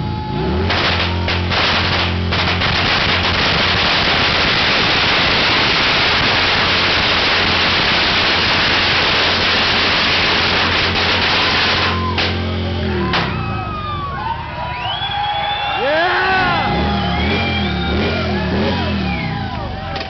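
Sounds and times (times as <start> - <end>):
firecrackers crackling: 0.5 - 14.1.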